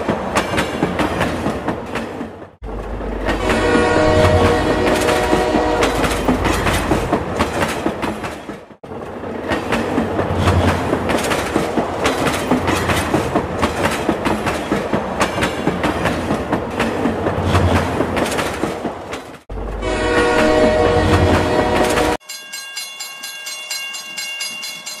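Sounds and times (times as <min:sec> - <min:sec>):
horn-like electronic tone: 0:03.3 - 0:06.1, 0:19.8 - 0:22.2.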